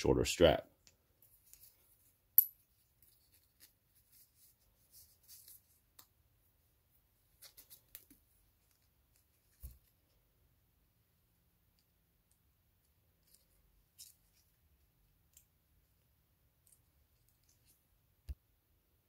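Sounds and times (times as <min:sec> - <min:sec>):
watch handling clicks and rustles: 0:13.2 - 0:14.6.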